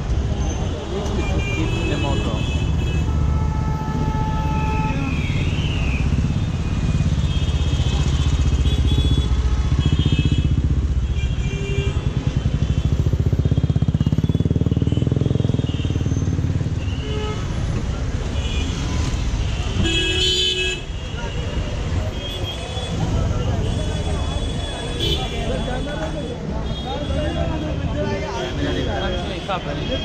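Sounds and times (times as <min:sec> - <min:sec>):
motorcycle engines: 0:00.0 - 0:30.0
car engines: 0:20.8 - 0:30.0.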